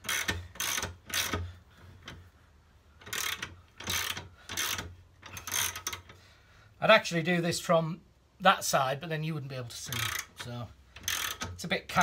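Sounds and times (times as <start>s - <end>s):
ratchet wrench clicking: 0.0s - 1.4s, 3.0s - 6.2s, 9.8s - 11.6s.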